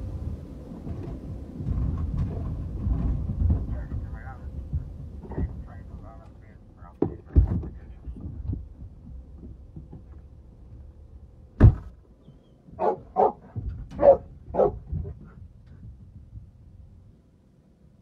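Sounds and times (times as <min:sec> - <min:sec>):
dog barking: 0:12.8 - 0:14.9.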